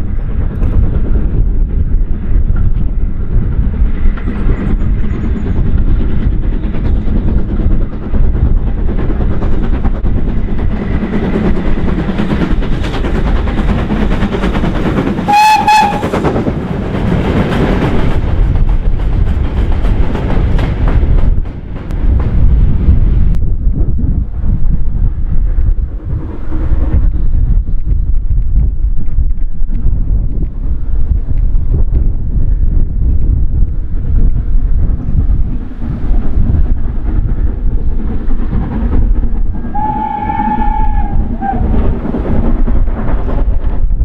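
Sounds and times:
train wheels on rails: 0.0 - 44.0
steam locomotive exhaust: 0.3 - 23.6, 32.5 - 44.0
steam whistle blast: 15.3 - 16.2, 39.7 - 41.6.

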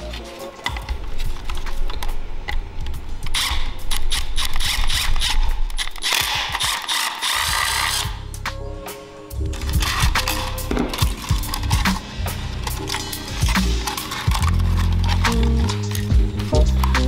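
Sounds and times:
power drill boring into plastic: 4.4 - 8.1.

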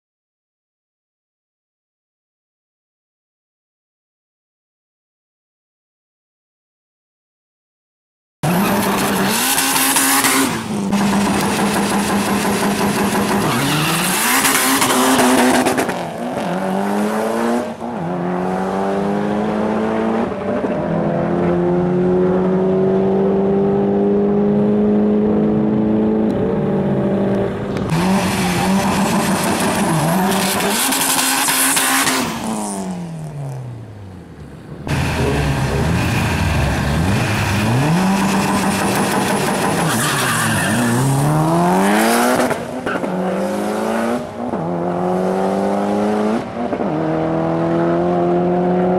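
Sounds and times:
car accelerating through gears: 8.4 - 33.7, 34.9 - 48.9
car engines revving hard: 8.4 - 48.9.

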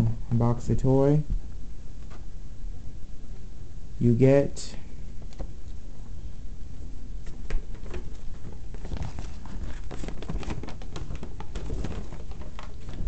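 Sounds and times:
paper rustling and crackling: 7.2 - 13.0.

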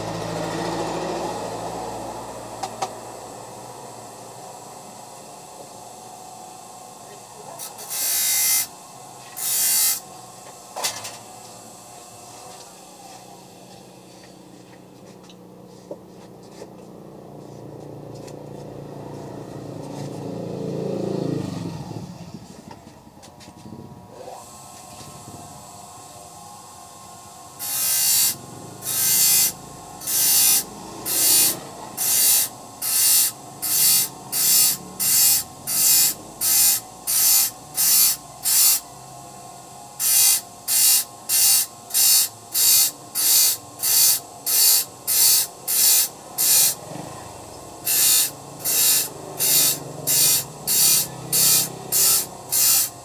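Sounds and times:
small grinder motor running: 0.0 - 14.7, 23.4 - 53.0
hissing grinding strokes: 7.3 - 10.0, 27.4 - 38.8, 40.0 - 53.0.

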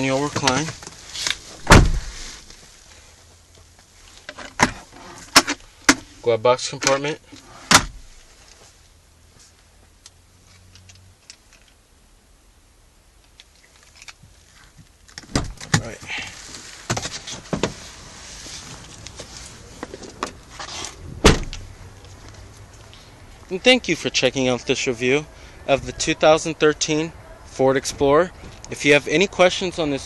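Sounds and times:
car door clicks and knocks: 1.6 - 2.1, 15.2 - 15.8
car door closing thud: 1.6 - 2.2, 7.7 - 8.1, 15.3 - 15.8, 21.2 - 21.6.

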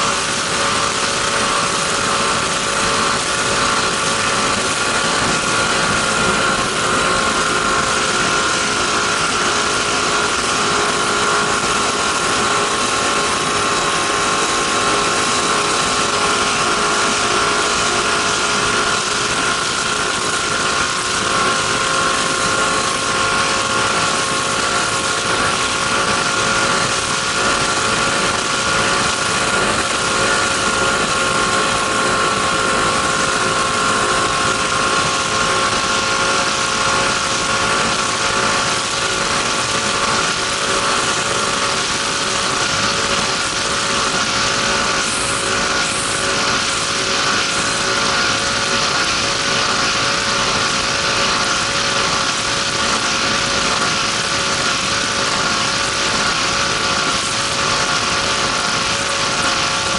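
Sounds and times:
boat engine running hard: 0.0 - 59.9
rushing noise: 0.0 - 59.9.

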